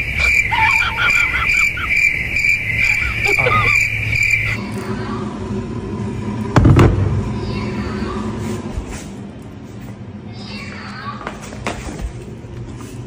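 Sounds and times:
high-pitched pulsing chirping tone: 0.0 - 4.9.

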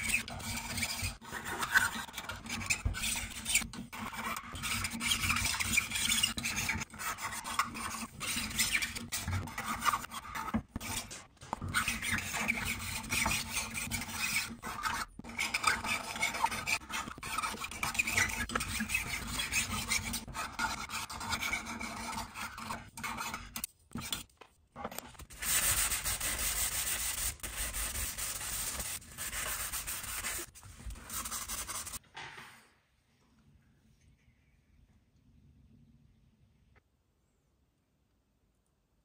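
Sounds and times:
hand file scraping metal: 0.0 - 24.3, 25.3 - 32.0.

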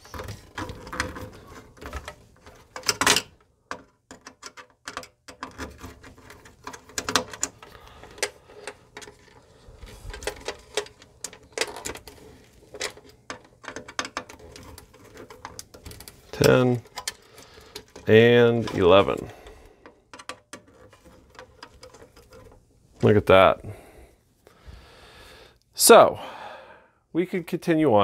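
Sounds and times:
small clicks taps and rattles: 0.0 - 9.4, 10.0 - 22.6.

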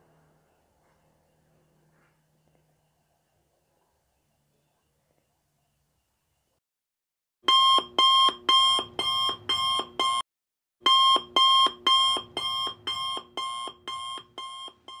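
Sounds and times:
pulsing alarm clock ringing: 10.9 - 15.0.

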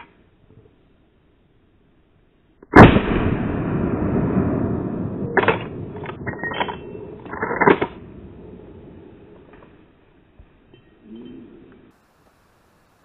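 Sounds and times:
rifle shot: 2.7 - 9.2
long rumble: 2.8 - 10.2.

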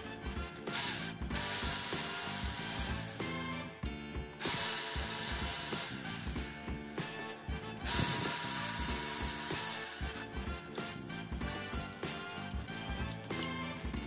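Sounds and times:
background music: 0.0 - 14.0
electric ratchet whining: 0.6 - 3.7, 4.3 - 7.1, 7.8 - 10.3.

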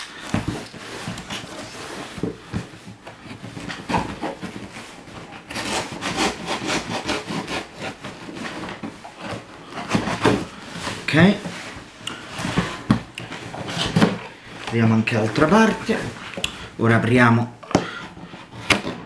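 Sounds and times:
cardboard box scraping and handling: 0.0 - 16.4
blade cutting cardboard: 3.5 - 10.6.

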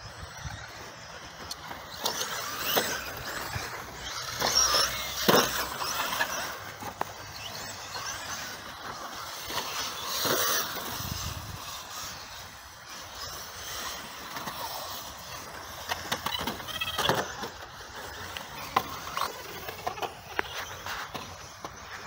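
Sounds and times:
model car motor whining: 0.0 - 22.0
tyres scrabbling on dirt: 0.1 - 22.0.

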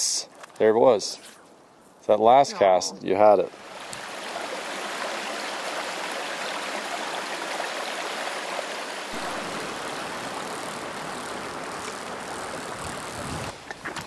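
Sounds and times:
stream rushing over rocks: 3.5 - 13.7.

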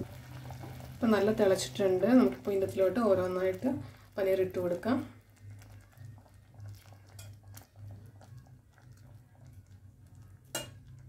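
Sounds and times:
low steady hum: 0.0 - 11.0
soft pops from boiling gravy: 0.0 - 11.0.

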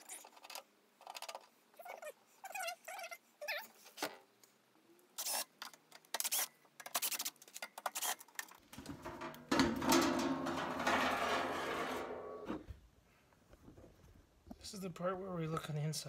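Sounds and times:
clicks and knocks: 8.7 - 12.6.

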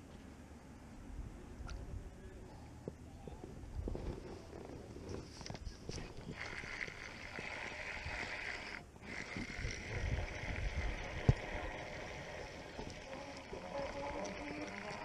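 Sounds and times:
fishing reel whirring: 6.2 - 15.0.

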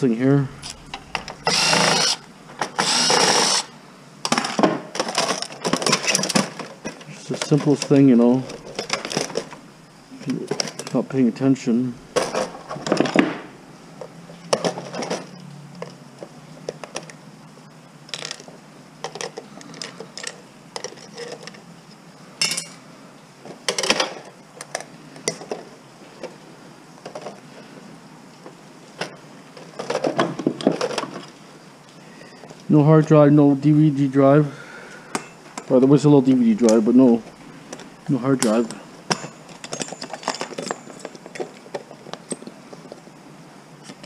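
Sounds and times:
metal parts and tools clinking: 0.5 - 3.7, 4.3 - 9.6, 18.1 - 21.6, 22.4 - 22.8, 38.4 - 43.0.

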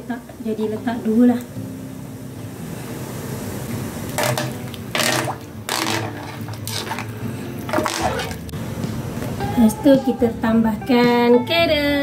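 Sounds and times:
spoon scraping in pot: 5.0 - 7.1, 7.7 - 8.5.

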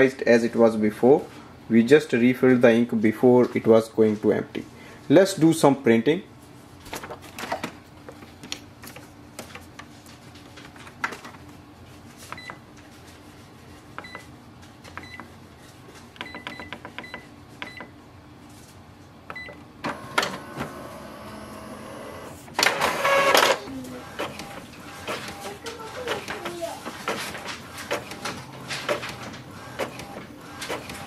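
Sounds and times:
printer mechanism running: 19.3 - 31.0.

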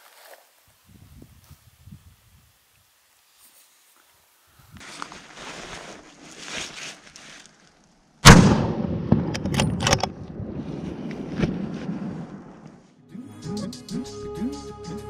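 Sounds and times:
soft rustling: 3.2 - 8.0
rifle shot with rumbling tail: 8.2 - 12.6.

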